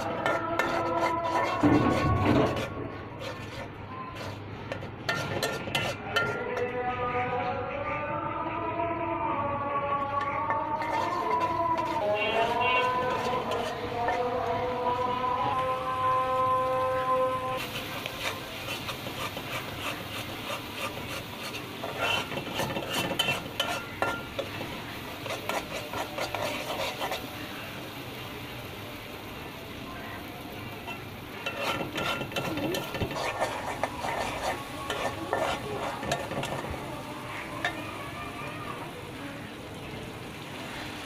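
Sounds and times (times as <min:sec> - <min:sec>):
paste sizzling in oil: 0:00.0 - 0:06.4, 0:10.0 - 0:41.0
metal spatula scraping pan: 0:00.0 - 0:06.8, 0:10.2 - 0:14.4, 0:17.6 - 0:27.3, 0:30.8 - 0:36.8.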